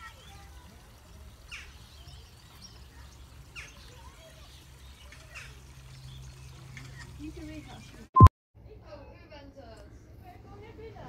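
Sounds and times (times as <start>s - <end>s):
birds chirping: 0.0s - 8.3s.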